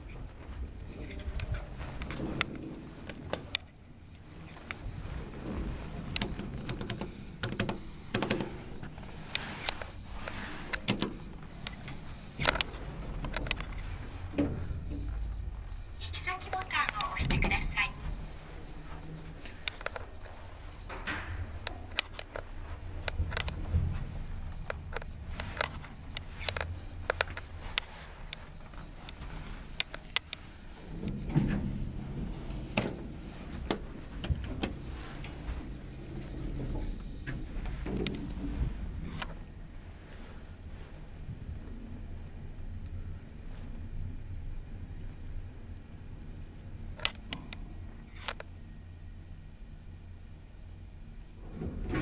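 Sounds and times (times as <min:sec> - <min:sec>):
sharp clicks and knocks: 0:00.0 - 0:39.4
elevator doors sliding: 0:00.0 - 0:52.0
low hum: 0:00.0 - 0:52.0.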